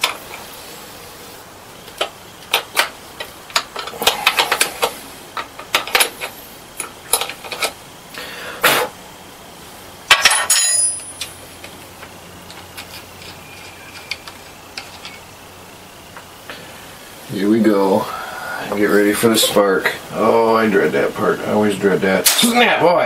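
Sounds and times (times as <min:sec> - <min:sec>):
metal hardware clinking on battery terminals: 0:10.1 - 0:15.4
sharp crack: 0:22.2 - 0:22.6.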